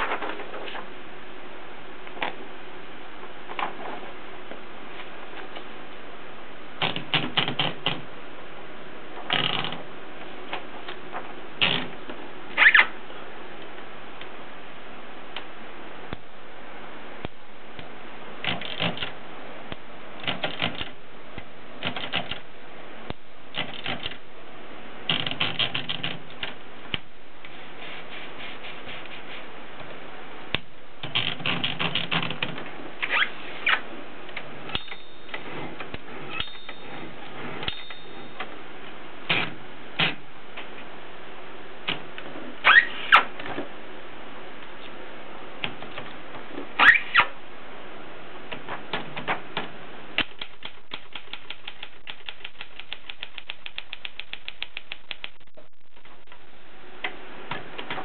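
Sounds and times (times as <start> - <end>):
typewriter platen ratcheting clicks: 6.8 - 8.0, 18.4 - 19.1, 20.2 - 21.0, 21.8 - 22.4, 23.5 - 24.2, 25.1 - 26.5, 31.0 - 32.6
typewriter carriage clacks: 25.1 - 26.2.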